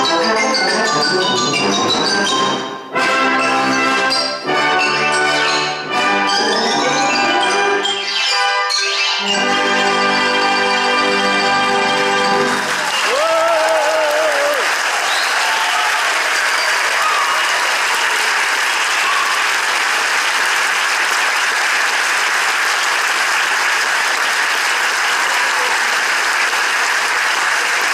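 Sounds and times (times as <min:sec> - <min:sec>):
audience applauding: 0:11.8 - 0:27.9
person cheering: 0:12.8 - 0:14.7.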